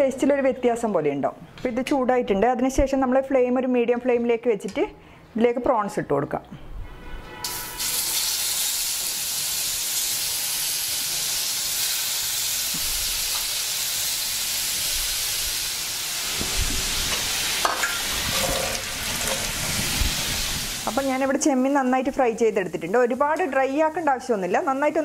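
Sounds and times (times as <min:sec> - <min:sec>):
prawns sizzling in a frying pan: 0:07.8 - 0:25.0.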